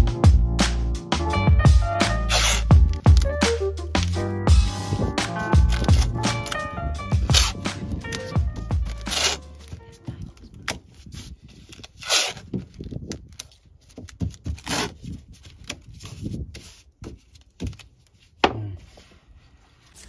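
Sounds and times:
tape rubbing on fiberglass: 2.0s - 3.3s, 4.7s - 18.4s
tape ripping: 2.1s - 3.4s, 4.8s - 16.8s.

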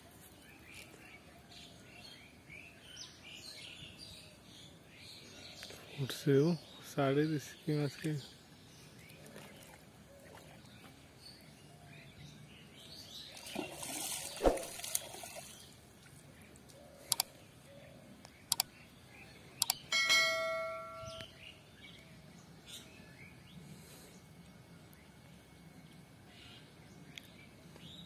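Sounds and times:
faint outdoor background: 0.0s - 28.0s
notification bell chime: 19.9s - 21.2s.

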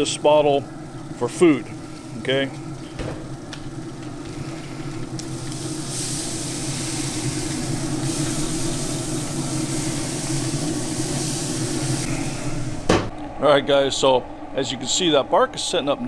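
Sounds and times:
grill motor and fan humming: 0.0s - 16.0s
spray bottle hissing: 4.3s - 12.9s.

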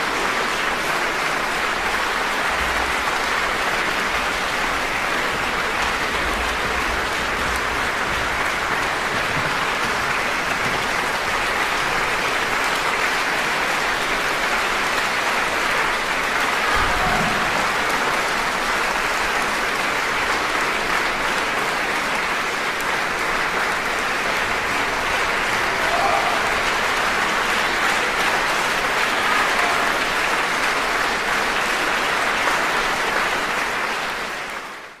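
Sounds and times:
audience applauding: 0.0s - 35.0s.

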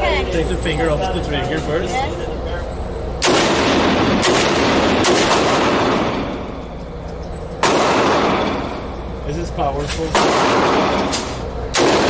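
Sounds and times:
gunshots echoing indoors: 3.2s - 6.8s, 7.6s - 9.1s, 10.1s - 12.0s.

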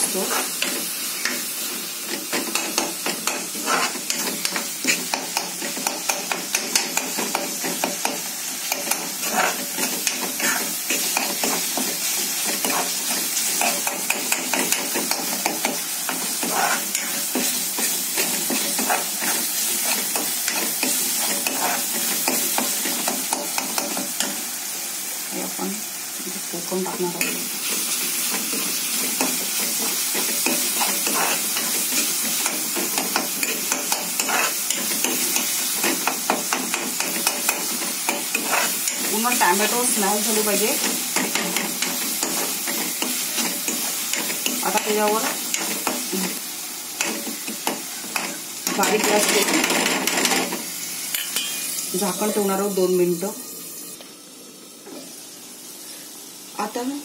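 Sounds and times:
frying sizzle: 0.0s - 57.0s
spatula scraping a pan: 0.2s - 1.4s, 2.1s - 7.9s, 8.7s - 15.3s, 16.1s - 23.0s, 27.2s - 39.6s.

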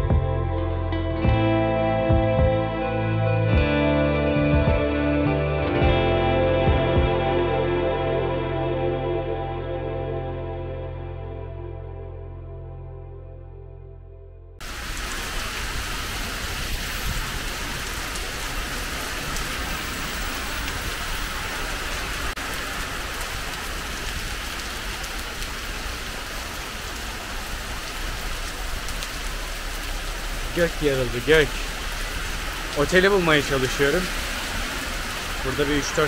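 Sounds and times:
background music: 0.0s - 14.4s
heavy rain on street: 14.6s - 36.0s.

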